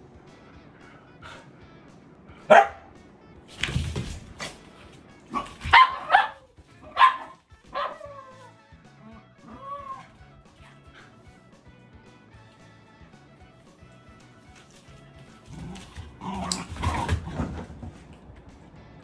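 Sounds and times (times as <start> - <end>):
faint background music: 0.0 - 19.0
dogs barking: 2.4 - 3.0, 5.2 - 11.3
dogs scuffling: 3.5 - 8.5, 13.8 - 18.6
dog whining: 7.8 - 11.2.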